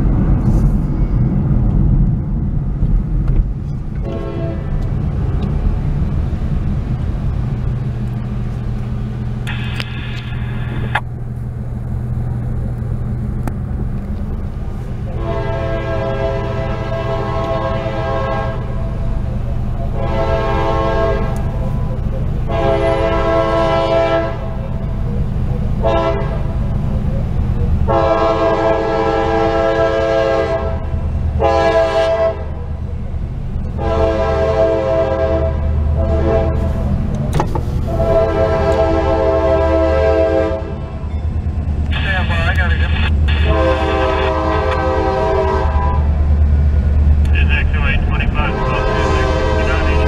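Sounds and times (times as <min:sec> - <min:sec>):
steady low hum: 0:00.0 - 0:28.8
locomotive air horn blasts: 0:04.0 - 0:04.8, 0:15.1 - 0:18.9, 0:19.9 - 0:21.5, 0:22.4 - 0:24.6, 0:25.8 - 0:26.5, 0:27.9 - 0:30.8, 0:31.4 - 0:32.6, 0:33.8 - 0:36.8, 0:37.9 - 0:40.8, 0:43.3 - 0:46.1, 0:48.3 - 0:50.0.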